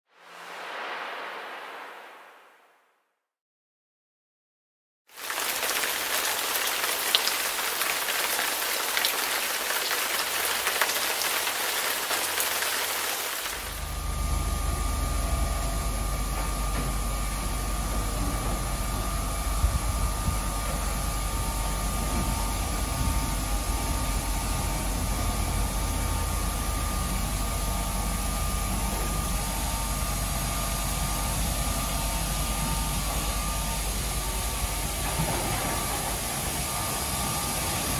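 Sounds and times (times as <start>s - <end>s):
water spraying onto car: 5.1s - 13.9s
thin steady whine: 12.2s - 37.9s
low machine hum: 13.4s - 37.9s.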